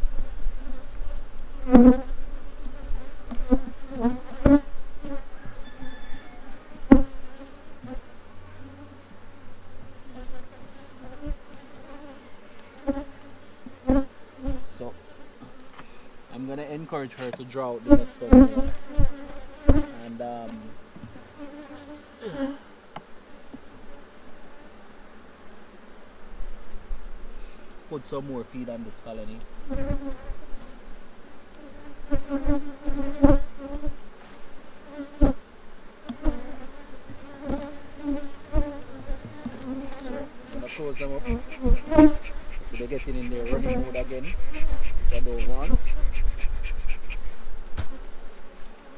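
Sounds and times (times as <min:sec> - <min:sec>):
bees buzzing: 0:00.0 - 0:48.9
soft knocks of hive frames: 0:36.0 - 0:46.0, 0:47.7 - 0:48.2
sharp knocks on hive box: 0:47.7 - 0:48.1.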